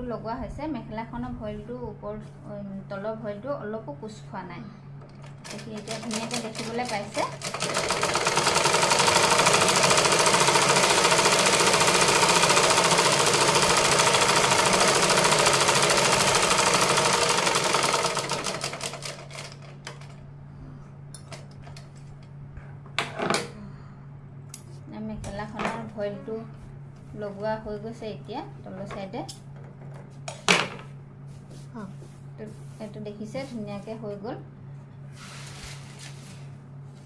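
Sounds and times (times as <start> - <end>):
sewing machine stitching: 5.2 - 20.1.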